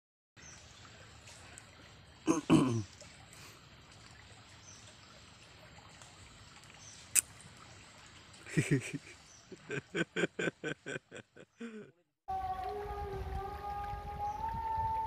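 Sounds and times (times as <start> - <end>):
shallow water trickling: 0.4 - 11.7.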